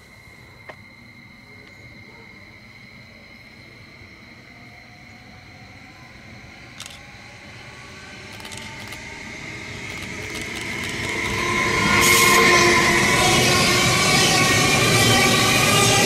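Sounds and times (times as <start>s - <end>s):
high steady whine: 0.0s - 16.0s
train wheels rumbling: 6.8s - 16.0s.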